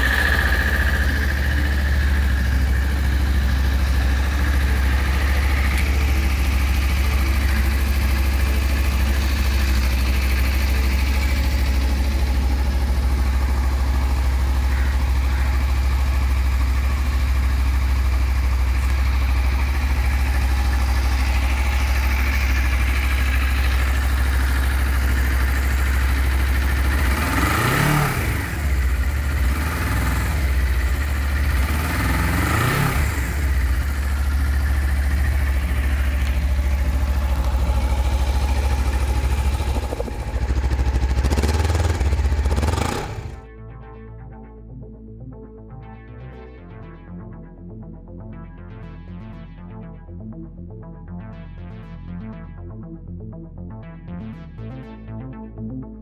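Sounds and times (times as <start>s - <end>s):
motorcycle engine revving: 0.0s - 43.4s
motorcycle engine idling: 0.0s - 43.5s.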